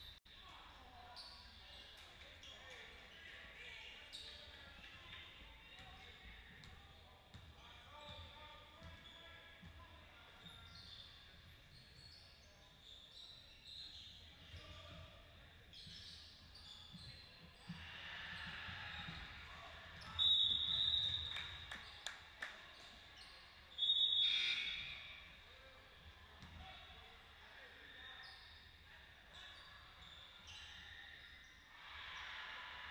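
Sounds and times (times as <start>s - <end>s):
player and crowd voices: 0.3s - 32.9s
referee's whistle blasts: 20.1s - 21.5s, 23.8s - 25.2s.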